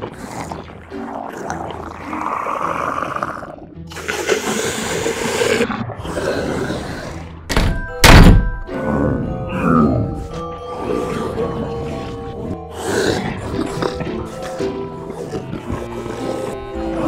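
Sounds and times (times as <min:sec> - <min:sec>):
background music with sustained notes: 0:00.0 - 0:17.0
heavy thud: 0:07.5 - 0:08.6.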